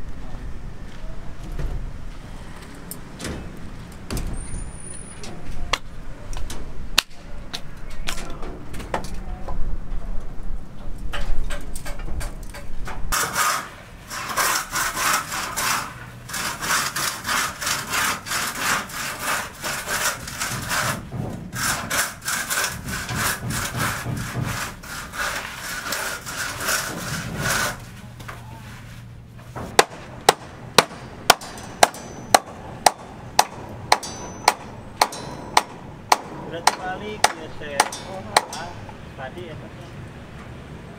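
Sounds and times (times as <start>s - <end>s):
rhythmic rasping strokes: 13.2s - 27.9s.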